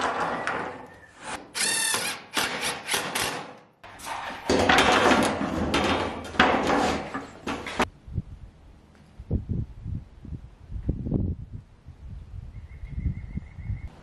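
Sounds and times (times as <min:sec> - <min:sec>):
metal roofing panel clanking: 0:00.0 - 0:01.0, 0:04.0 - 0:07.9
metal sheet rattling scrape: 0:03.8 - 0:07.9.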